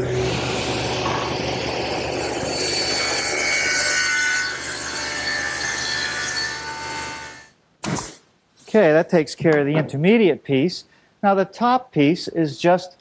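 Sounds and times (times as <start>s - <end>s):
motor hum: 0.0s - 3.1s
table saw cutting wood: 0.0s - 7.5s.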